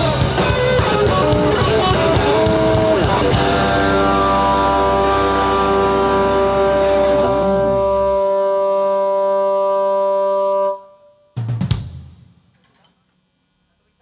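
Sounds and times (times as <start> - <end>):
deep bass note: 0.0 - 9.9
rock band sustained guitar chord: 0.0 - 10.9.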